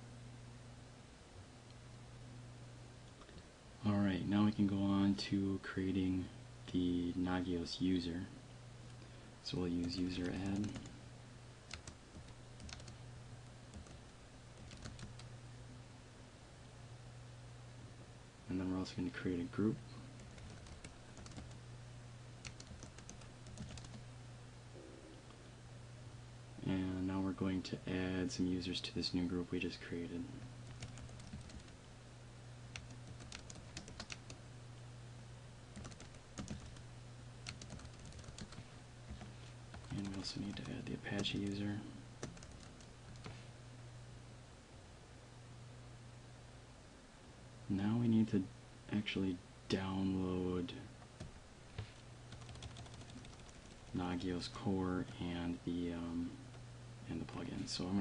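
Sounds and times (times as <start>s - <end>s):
low steady hum: 0.0s - 58.0s
keyboard typing: 9.8s - 10.9s, 11.7s - 13.0s, 13.7s - 14.0s, 14.6s - 15.3s, 20.2s - 21.6s, 22.4s - 24.0s, 30.6s - 31.8s, 32.7s - 34.4s, 35.7s - 36.8s, 37.4s - 41.6s, 42.2s - 43.4s, 52.3s - 54.0s.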